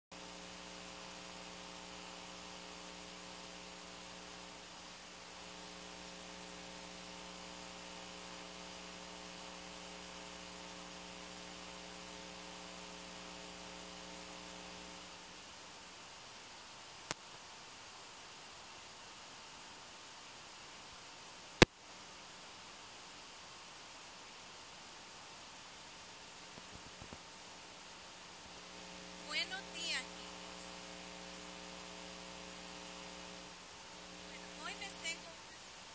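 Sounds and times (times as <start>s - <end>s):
electrical mains hum: 0.2s - 35.9s
faint hiss: 0.2s - 35.9s.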